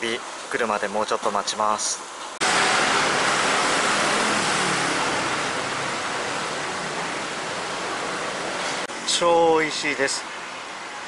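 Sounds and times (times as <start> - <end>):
loud steady rushing noise: 2.4 - 9.2.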